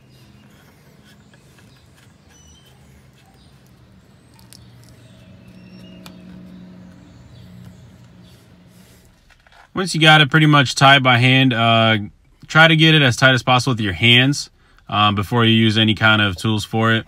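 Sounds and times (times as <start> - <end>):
faint high chirps: 0.0 - 7.9
plastic nut scraping on threads: 0.4 - 7.0.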